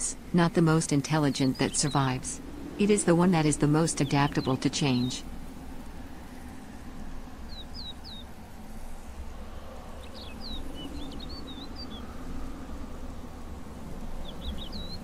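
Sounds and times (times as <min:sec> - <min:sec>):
low rumble: 0:01.6 - 0:07.4
small bird chirping: 0:07.4 - 0:08.3, 0:09.6 - 0:12.1, 0:14.2 - 0:15.0.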